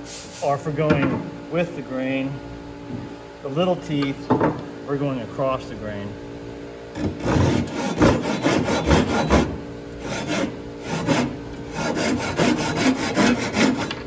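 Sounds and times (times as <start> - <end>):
handsaw rasping through wood: 7.0 - 14.0.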